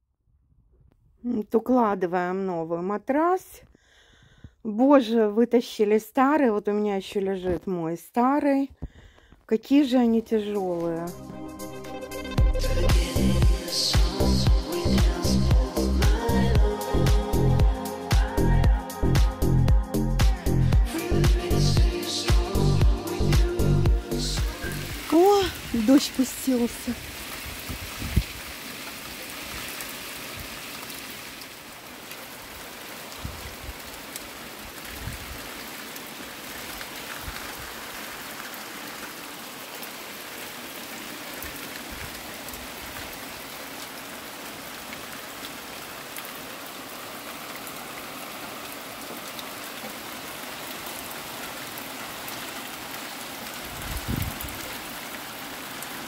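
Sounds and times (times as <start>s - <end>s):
rain on leaves and patio: 7.0s - 56.0s.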